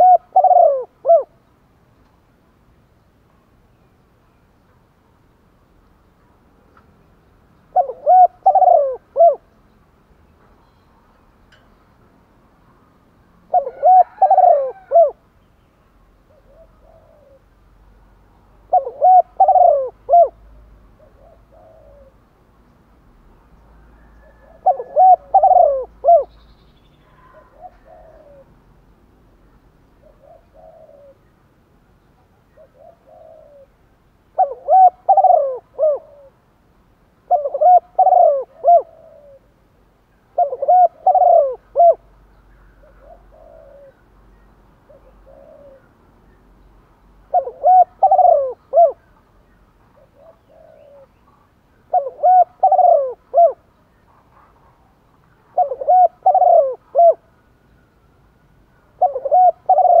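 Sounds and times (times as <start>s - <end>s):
dove cooing: 0.0s - 1.4s, 7.7s - 9.5s, 13.5s - 15.2s, 16.3s - 17.5s, 18.7s - 22.2s, 23.9s - 26.3s, 27.2s - 28.6s, 30.0s - 31.3s, 32.4s - 33.8s, 34.4s - 36.4s, 37.3s - 39.6s, 40.3s - 42.1s, 42.8s - 44.0s, 44.8s - 45.9s, 47.3s - 49.1s, 50.0s - 51.2s, 51.9s - 54.6s, 55.5s - 57.3s, 58.9s - 60.0s
faint short coos: 27.0s - 28.5s.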